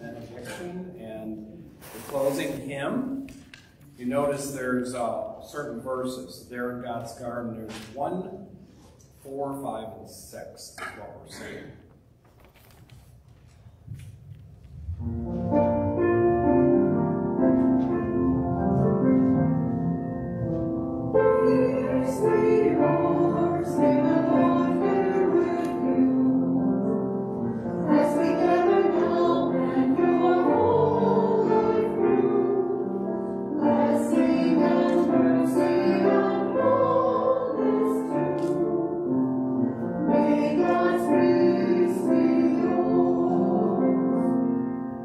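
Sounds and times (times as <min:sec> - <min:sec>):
keyboard accompaniment: 0:14.6 - 0:45.0
choir singing a hymn: 0:15.1 - 0:44.8.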